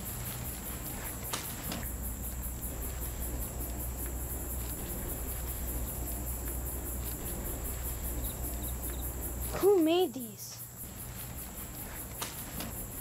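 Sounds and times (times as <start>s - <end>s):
crickets chirping: 0.0s - 13.0s
low steady hum: 0.0s - 13.0s.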